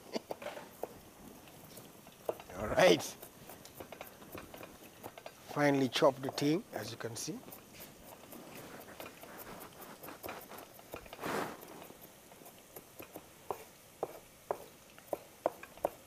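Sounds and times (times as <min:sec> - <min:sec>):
knife chopping on cutting board: 0:12.8 - 0:16.0.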